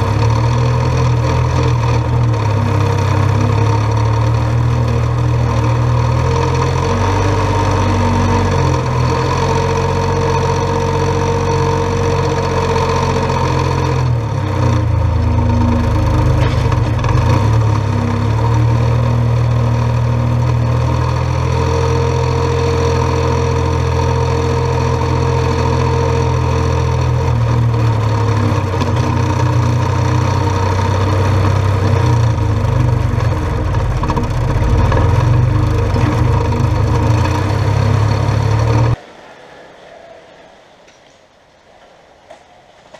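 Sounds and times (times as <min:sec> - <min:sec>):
tractor diesel engine running: 0:00.0 - 0:39.0
scraping: 0:31.0 - 0:39.0.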